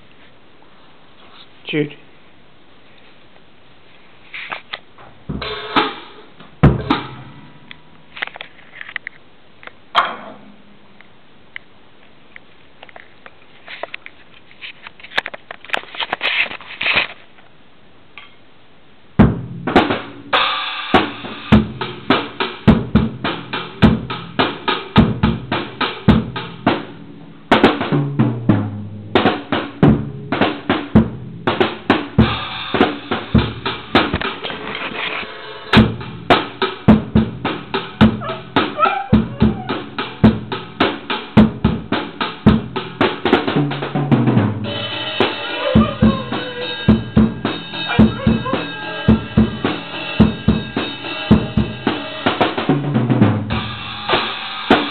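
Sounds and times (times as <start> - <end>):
drum kit beats: 4.4 - 8.3, 19.2 - 54.9.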